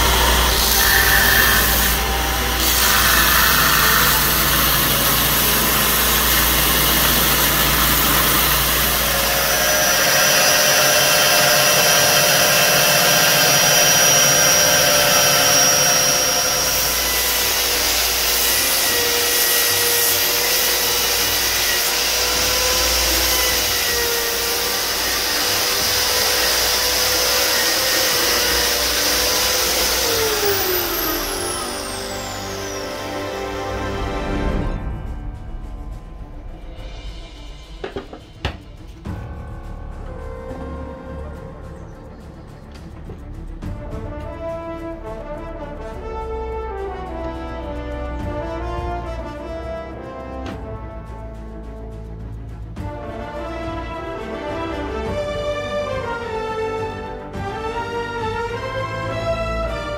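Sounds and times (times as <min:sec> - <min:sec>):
buffing wheel polishing wood: 0:00.0 - 0:33.4
belt sander grinding wood: 0:00.0 - 0:33.6.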